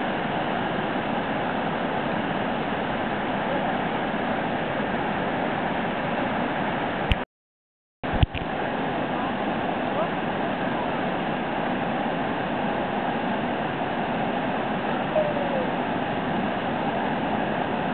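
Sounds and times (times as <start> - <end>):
river water rushing over weir: 0.0 - 7.2, 8.1 - 17.9
click: 8.2 - 8.5.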